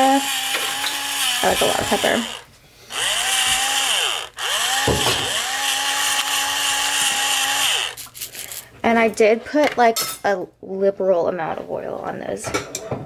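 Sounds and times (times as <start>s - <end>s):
electric pepper grinder whirring: 0.0s - 8.6s.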